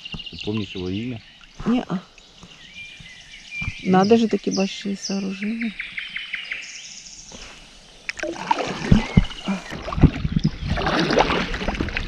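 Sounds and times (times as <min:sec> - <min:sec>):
paddle splashing in water: 0:07.4 - 0:12.0.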